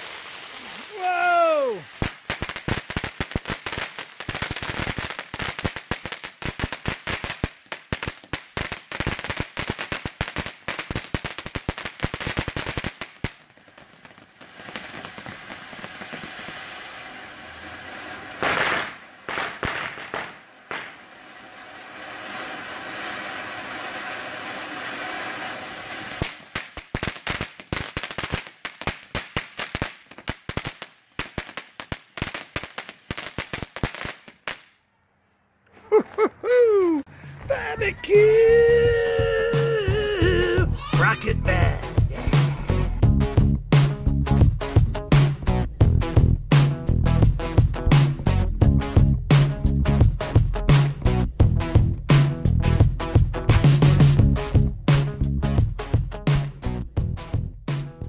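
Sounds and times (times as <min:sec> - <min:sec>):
hissing spray of sparks: 0:00.0 - 0:07.9, 0:14.5 - 0:30.7
firework fountain crackling: 0:00.0 - 0:34.8, 0:35.8 - 0:43.0.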